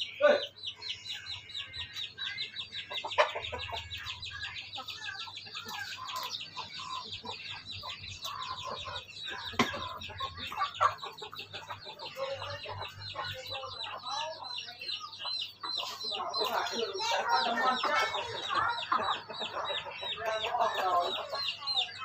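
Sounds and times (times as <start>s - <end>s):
chickens clucking: 0.0s - 22.0s
rapid high-pitched chirping: 0.0s - 22.0s.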